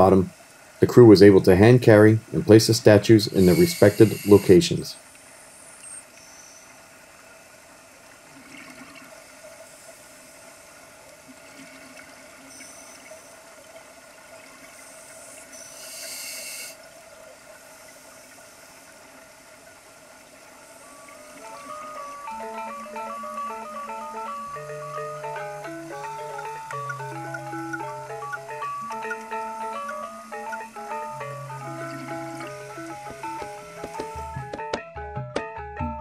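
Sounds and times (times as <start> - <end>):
faint steady hum: 0.0 - 34.6
diver breathing bubbles underwater: 14.8 - 16.8.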